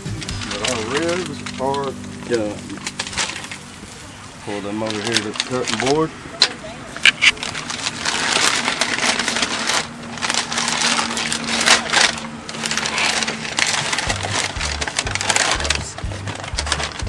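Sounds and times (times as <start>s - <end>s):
background music bass line: 0.0s - 4.4s, 13.6s - 17.0s
wrapping paper crinkling: 0.0s - 6.1s, 7.0s - 17.0s.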